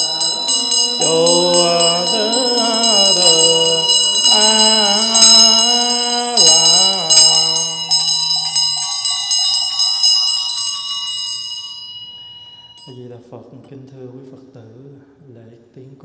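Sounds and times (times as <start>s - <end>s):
monk chanting: 0.0s - 9.2s
handbell rung rapidly: 0.0s - 13.0s.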